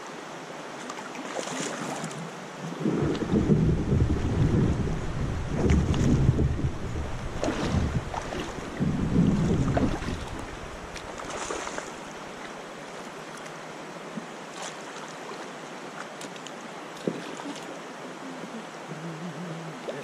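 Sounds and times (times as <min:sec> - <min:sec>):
river water running: 0:00.0 - 0:20.0
loud low rumble: 0:02.8 - 0:08.1, 0:08.7 - 0:10.9.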